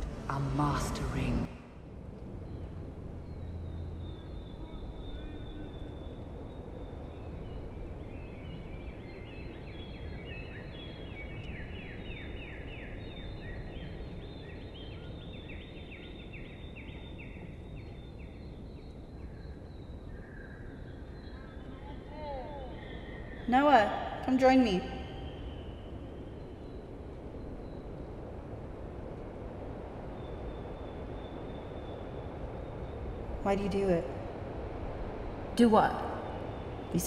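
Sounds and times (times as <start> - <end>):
steady background noise: 0.0 - 37.0
bird chirping: 2.4 - 28.0.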